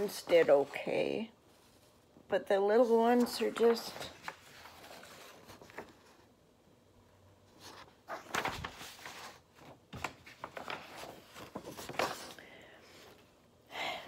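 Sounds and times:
paper sheet rustling: 0:02.8 - 0:06.3, 0:07.5 - 0:12.4.

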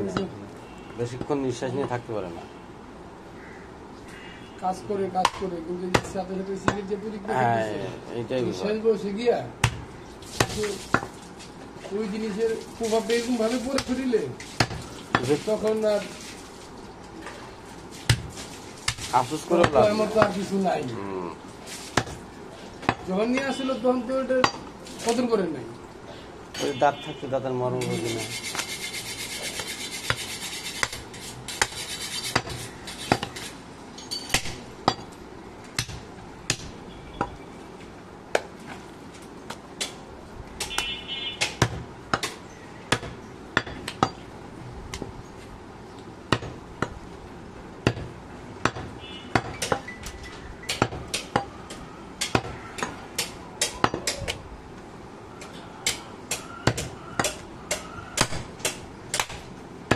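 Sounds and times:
cleaver chopping meat on wood: 0:09.6 - 0:11.1, 0:50.7 - 0:51.5, 0:52.2 - 0:54.4, 0:55.8 - 0:59.4.

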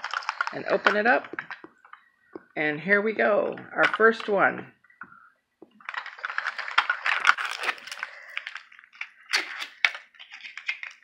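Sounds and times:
plastic wrapping crinkling: 0:00.0 - 0:02.4, 0:05.6 - 0:11.0.

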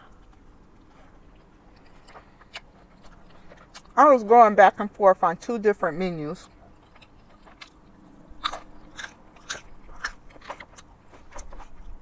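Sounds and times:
person chewing crunchy salad: 0:00.0 - 0:04.0, 0:06.4 - 0:12.0.

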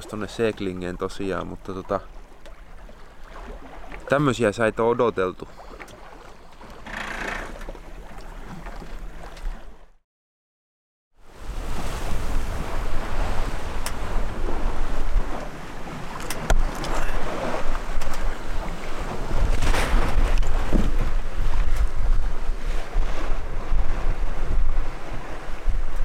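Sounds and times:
water rushing along hull: 0:00.0 - 0:10.0, 0:11.2 - 0:26.0
wind buffeting microphone: 0:11.4 - 0:26.0.

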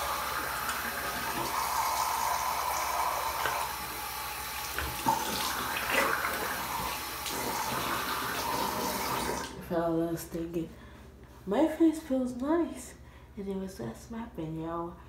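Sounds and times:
tap running into sink: 0:03.2 - 0:03.8, 0:04.7 - 0:07.0.

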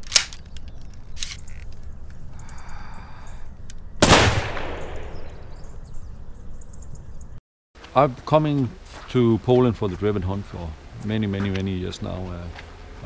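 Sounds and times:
gunshot: 0:04.0 - 0:05.6.

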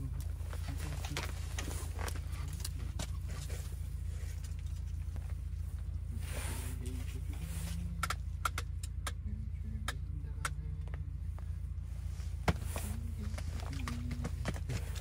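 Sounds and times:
engine rumbling: 0:00.0 - 0:15.0
sharp clicks and taps: 0:08.0 - 0:09.2.

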